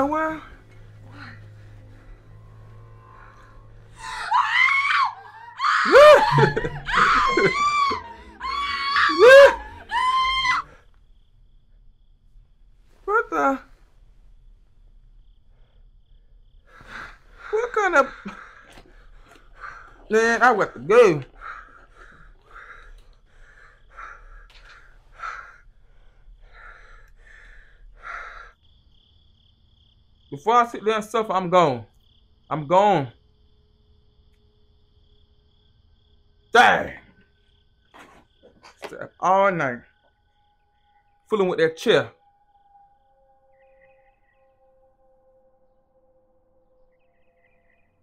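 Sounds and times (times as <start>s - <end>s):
lower cry rising and falling: 0.0s - 11.2s
woman screaming: 4.0s - 10.8s.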